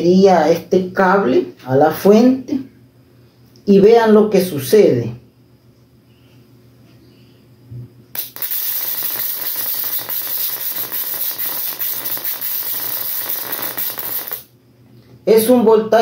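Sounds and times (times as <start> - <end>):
high-voltage arc crackling: 8.2 - 14.5.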